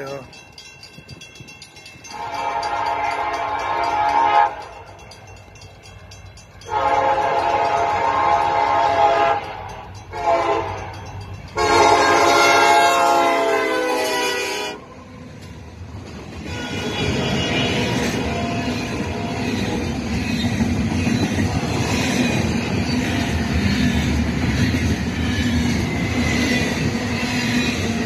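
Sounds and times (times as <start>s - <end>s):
low train rumble: 0.0s - 28.0s
locomotive horn blasts: 2.1s - 4.7s, 6.7s - 9.5s, 10.1s - 10.8s, 11.6s - 14.8s, 16.5s - 19.6s.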